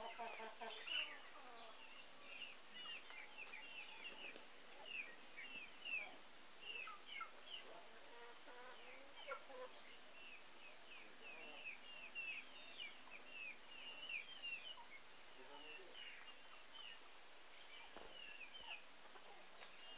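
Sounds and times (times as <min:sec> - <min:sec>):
birds chirping: 0:00.0 - 0:19.9
lower bird calls: 0:00.0 - 0:19.9.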